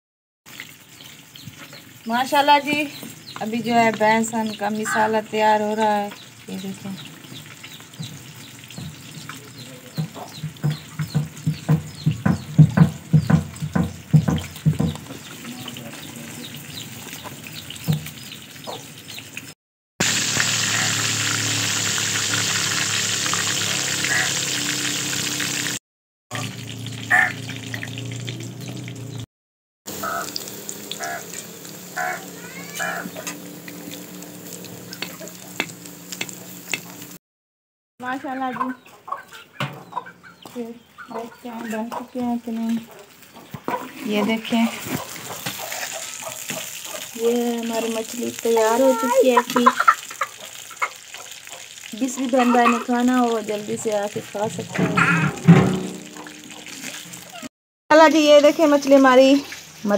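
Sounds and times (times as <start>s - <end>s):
fish sizzling in oil: 0.5s - 29.3s, 29.9s - 37.2s, 41.8s - 59.9s
hen clucking: 2.9s - 12.4s, 30.0s - 31.4s, 32.0s - 33.4s, 38.0s - 47.2s, 48.6s - 53.1s, 54.8s - 57.5s.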